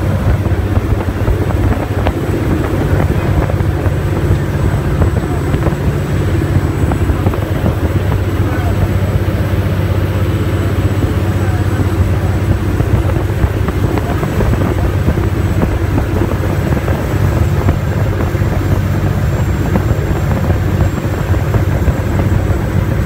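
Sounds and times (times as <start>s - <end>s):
churning water: 0.0s - 23.0s
ferry engines droning: 0.0s - 23.0s
wind rushing: 0.0s - 23.0s.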